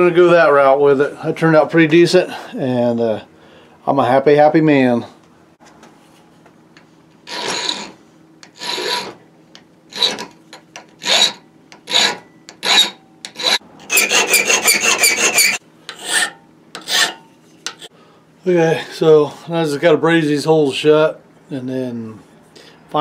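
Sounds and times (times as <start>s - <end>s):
file rasping on brass: 7.2s - 9.2s, 9.9s - 10.4s, 11.0s - 17.9s.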